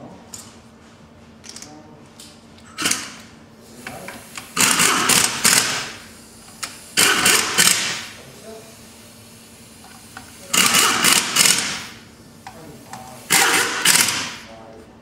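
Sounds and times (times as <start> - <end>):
cordless power driver running: 4.3 - 8.1, 10.4 - 12.0, 13.3 - 14.4.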